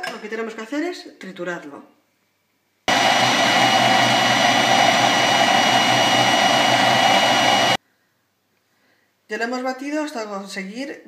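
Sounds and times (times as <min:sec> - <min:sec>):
food processor whining: 0:02.9 - 0:07.8.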